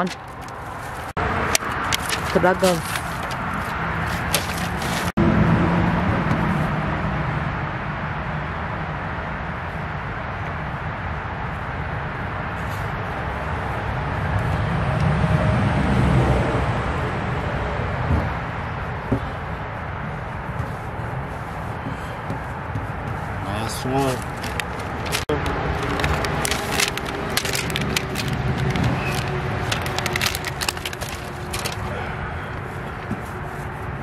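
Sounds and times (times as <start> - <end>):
road traffic rumble: 0.0 - 34.0
vehicle passing: 0.0 - 34.0.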